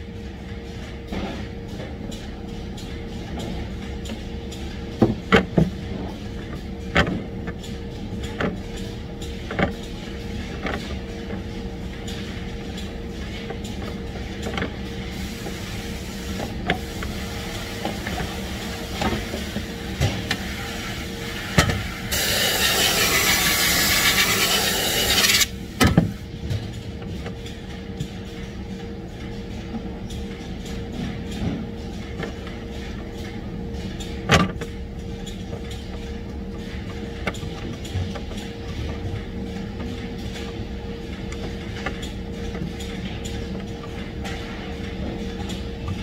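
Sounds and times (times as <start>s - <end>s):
factory hum: 0.0s - 46.0s
compressed air hissing: 22.1s - 25.5s.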